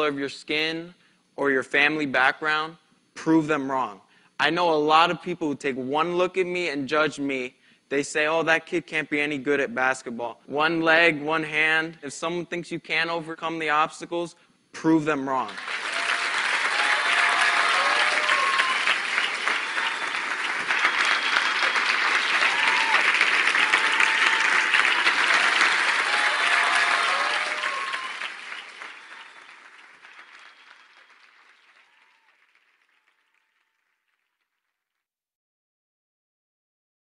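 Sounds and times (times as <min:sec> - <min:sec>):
crowd applauding and cheering: 0:15.5 - 0:34.5.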